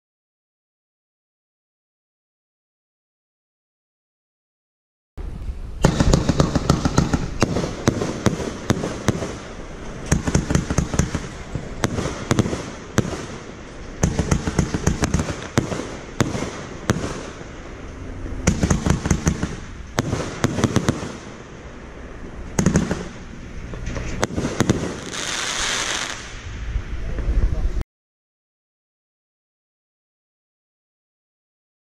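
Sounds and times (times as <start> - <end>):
firework launch thumps and bursts: 5.8 - 17.6, 18.4 - 21.4, 22.5 - 26.4
firework hiss: 5.8 - 17.8, 18.5 - 27.5.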